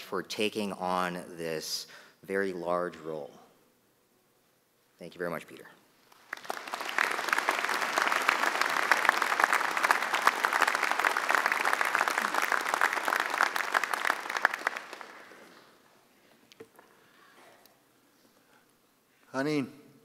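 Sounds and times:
audience applauding: 6.1 - 15.8.

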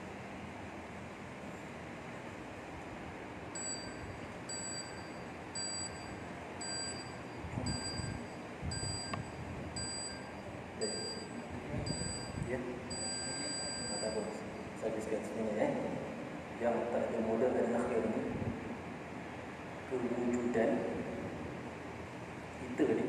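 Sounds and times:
steady background hiss: 0.0 - 23.0
short electronic beeps: 3.6 - 14.4.

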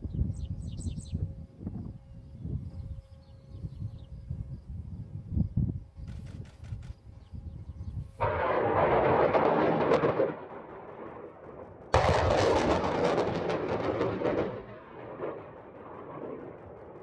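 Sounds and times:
rocket launch blast: 8.2 - 17.0.

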